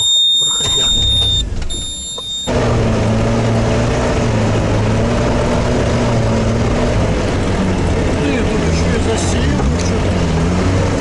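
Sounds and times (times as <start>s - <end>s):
all-terrain vehicle engine droning: 0.0s - 11.0s.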